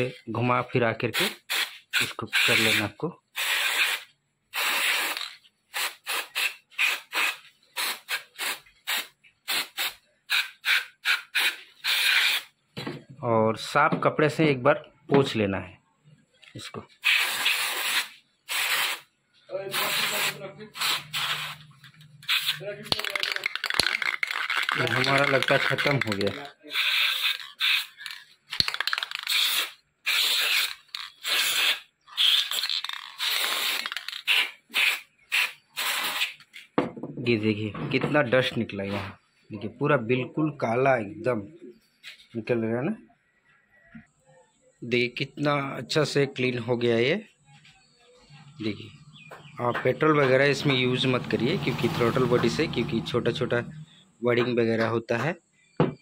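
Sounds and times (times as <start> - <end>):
aerosol spray hissing squirts: 1.3 - 2.8, 3.4 - 12.5, 17.0 - 19.1, 19.7 - 36.6.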